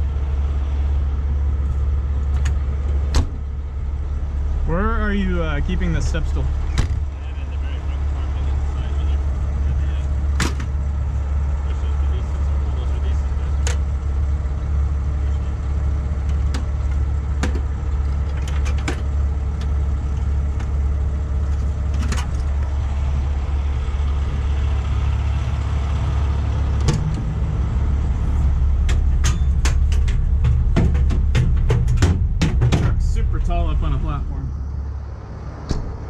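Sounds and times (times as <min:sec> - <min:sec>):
diesel engine idling: 0:00.0 - 0:36.0
equipment clanking in metal compartment: 0:16.3 - 0:20.8, 0:21.5 - 0:22.7, 0:28.8 - 0:33.0.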